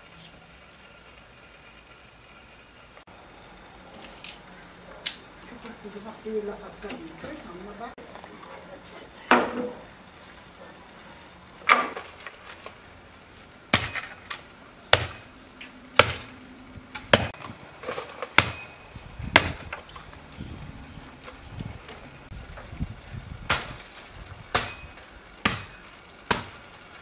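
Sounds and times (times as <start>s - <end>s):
dry sticks snapping: 3.9s - 5.8s.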